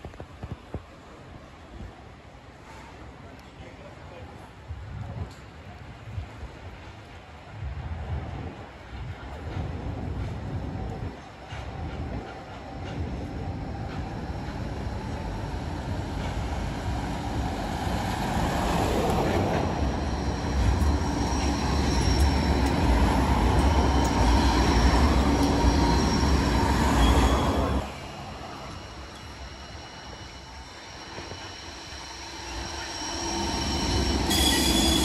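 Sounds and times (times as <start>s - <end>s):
tram rumble and wheel noise: 0.0s - 35.0s
thin high whine: 19.8s - 35.0s.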